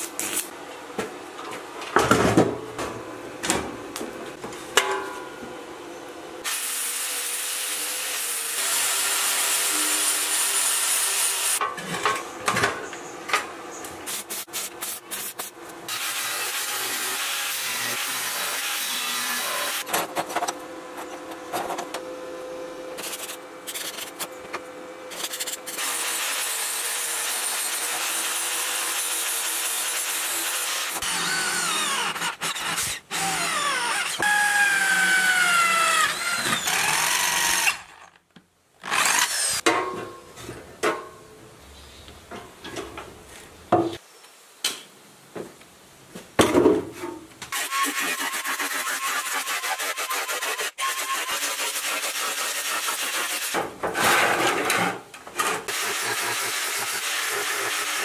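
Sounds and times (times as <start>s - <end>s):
angle grinder cutting steel: 6.4s - 11.6s, 15.9s - 19.9s, 25.1s - 38.1s, 38.8s - 39.6s, 47.5s - 53.6s, 55.7s - 58.0s.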